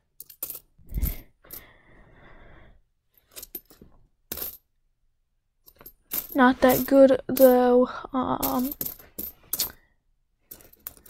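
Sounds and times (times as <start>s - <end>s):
rustle of coins and glove: 0.1s - 1.7s, 3.1s - 4.6s, 5.6s - 7.7s, 8.4s - 9.8s, 10.4s - 11.0s
coins clinking: 0.2s - 0.7s, 5.7s - 7.6s, 8.4s - 9.8s, 10.5s - 11.0s.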